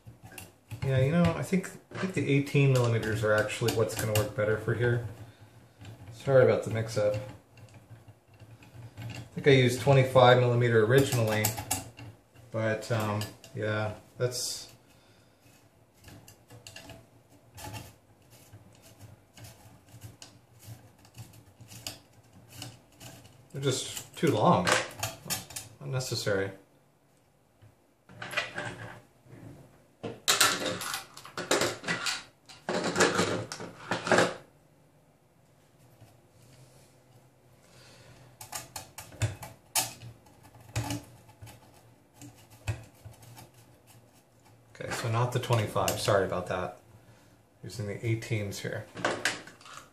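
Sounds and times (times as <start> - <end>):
small clicks and rubbing: 0.0 - 26.4, 38.2 - 46.8, 48.3 - 49.9.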